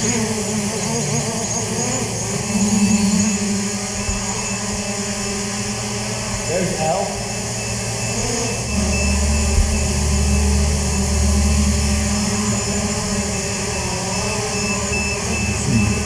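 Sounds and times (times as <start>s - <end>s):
drone propellers buzzing: 0.0s - 16.0s.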